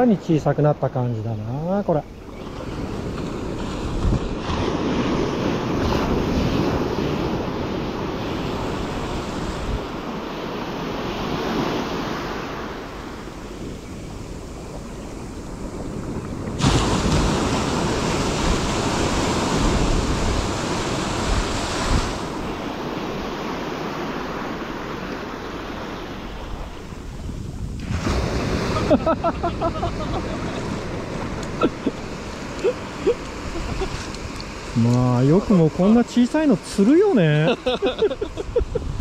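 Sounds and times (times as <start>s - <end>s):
waves breaking on a beach: 0.0s - 39.0s
wind on microphone: 2.3s - 10.3s, 13.0s - 23.4s, 26.2s - 34.9s, 37.5s - 39.0s.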